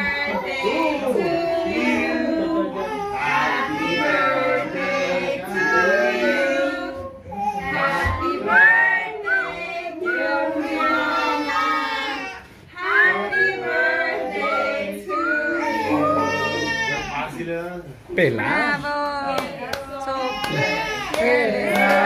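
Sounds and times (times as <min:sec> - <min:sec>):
group singing a celebration song: 0:00.0 - 0:16.8, 0:21.2 - 0:22.0.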